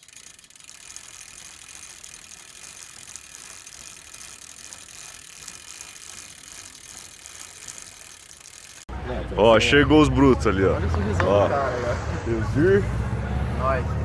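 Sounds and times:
bicycle freewheel clicking: 0:00.0 - 0:08.9.

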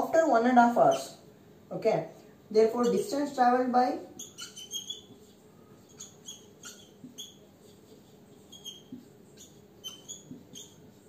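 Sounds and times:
marker squeaking on whiteboard: 0:00.8 - 0:01.2, 0:02.6 - 0:03.4, 0:04.0 - 0:11.0.

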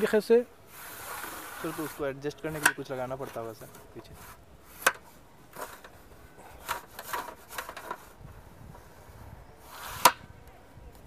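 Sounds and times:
telescopic staff sliding and clicking: 0:00.7 - 0:08.9, 0:09.6 - 0:10.3.

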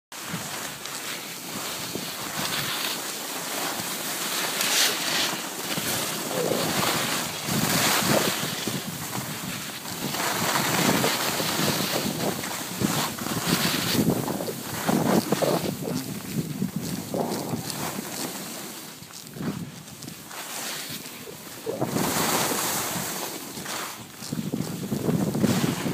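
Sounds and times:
skis scraping on snow: 0:00.2 - 0:25.9
wind rushing over microphone: 0:05.7 - 0:25.9.

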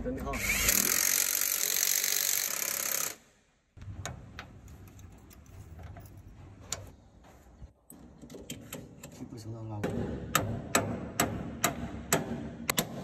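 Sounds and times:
metal parts clicking and knocking: 0:04.0 - 0:06.9.

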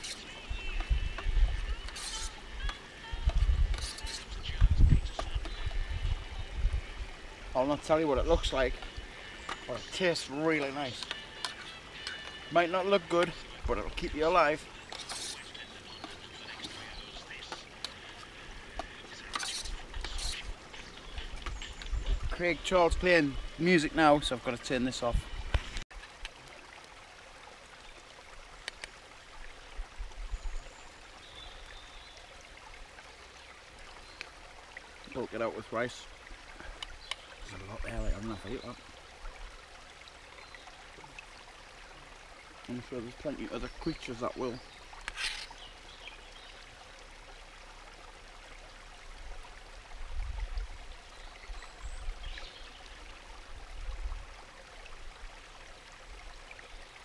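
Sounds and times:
river running: 0:00.0 - 0:57.0.

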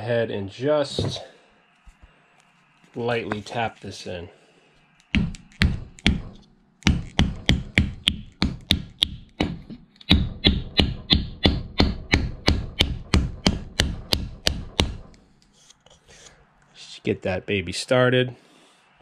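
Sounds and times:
hammer tapping wooden wedge: 0:05.0 - 0:15.2.

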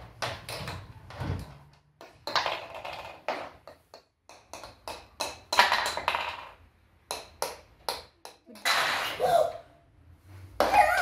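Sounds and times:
irregular taps and knocks: 0:00.0 - 0:08.6.

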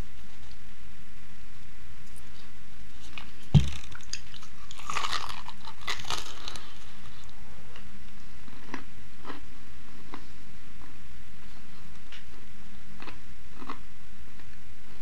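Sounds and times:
crisp pastry crunching: 0:03.0 - 0:09.5
sharp thump: 0:03.5 - 0:03.8.

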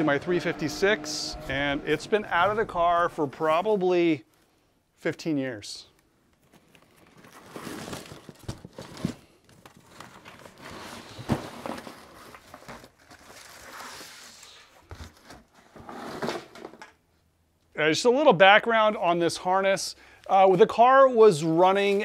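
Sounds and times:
wires rustling against cardboard: 0:06.0 - 0:16.8.

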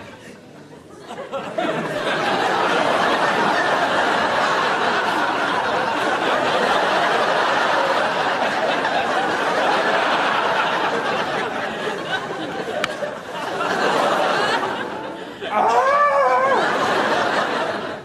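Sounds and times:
studio audience laughing: 0:00.9 - 0:18.0.

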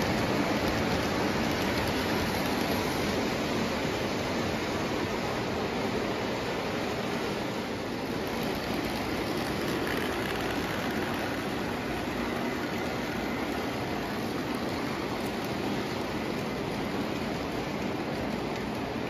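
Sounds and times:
toy train wheels rumbling on rails: 0:00.0 - 0:19.0.

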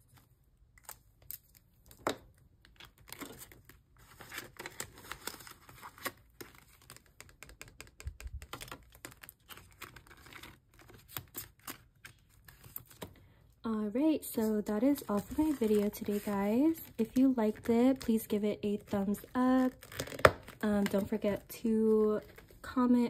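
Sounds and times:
plastic envelope rustling and crinkling: 0:00.0 - 0:13.4, 0:14.1 - 0:23.0.

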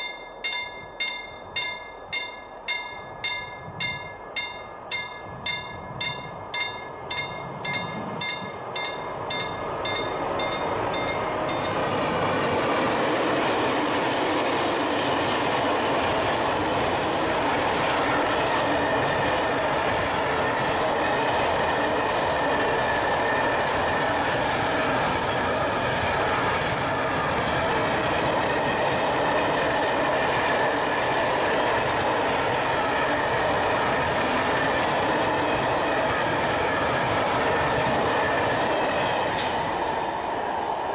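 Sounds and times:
level crossing warning bell: 0:00.0 - 0:12.3
freight train rumbling over rail joints: 0:00.0 - 0:40.9.

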